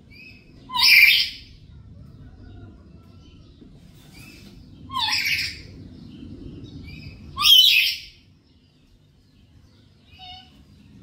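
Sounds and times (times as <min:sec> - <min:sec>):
low background rumble: 0:00.0 - 0:11.0
parrot harsh calls: 0:00.7 - 0:01.5, 0:04.9 - 0:05.7.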